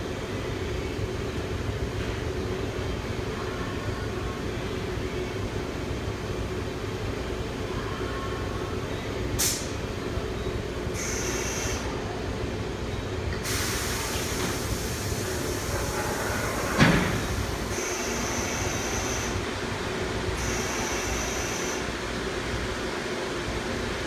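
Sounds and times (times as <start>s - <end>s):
loud burst of air: 9.4s - 9.8s, 13.4s - 15.8s
short sharp air hiss: 9.4s - 9.8s, 13.4s - 15.0s.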